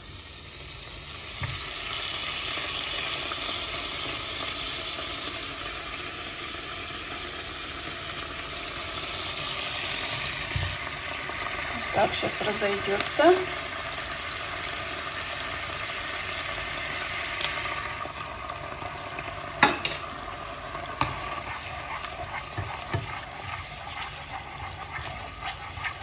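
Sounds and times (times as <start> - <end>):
sauce sizzling and bubbling: 0.0 - 26.0
spatula scraping pot: 20.9 - 26.0.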